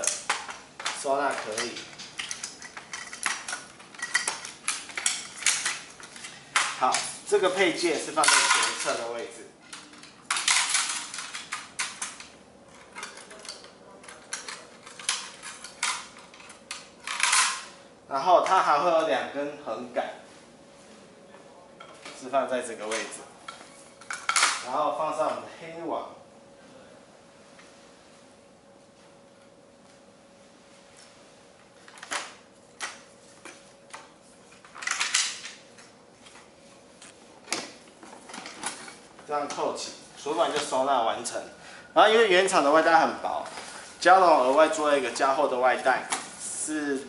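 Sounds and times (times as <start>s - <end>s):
metal poles clinking and knocking: 0.0s - 6.8s, 8.2s - 9.1s.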